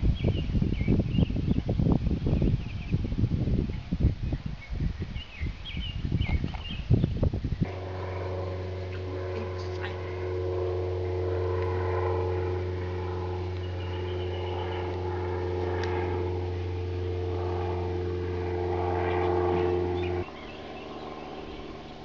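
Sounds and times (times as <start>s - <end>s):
motor humming: 5.7s - 22.0s.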